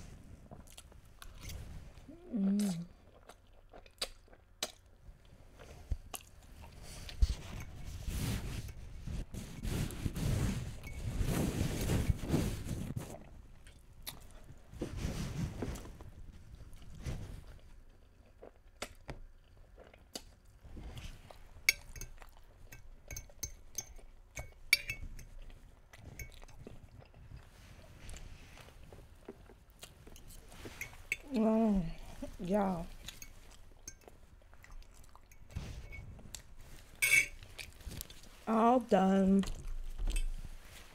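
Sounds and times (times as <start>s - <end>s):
chewing pasta: 0.5s - 7.8s, 12.8s - 14.8s, 15.5s - 38.5s, 39.4s - 40.9s
fork clinking on glass dish: 21.7s - 25.1s, 37.0s - 37.4s.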